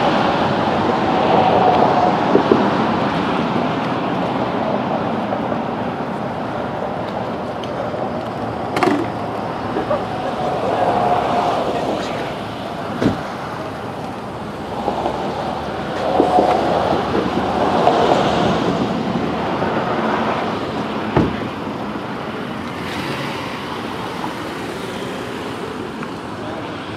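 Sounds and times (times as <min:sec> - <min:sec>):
vehicle noise: 0:00.0 - 0:26.9
wind on microphone: 0:00.0 - 0:26.9.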